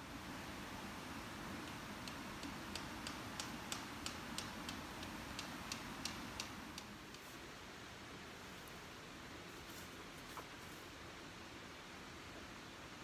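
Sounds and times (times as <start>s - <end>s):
regular ticking: 1.6s - 7.2s.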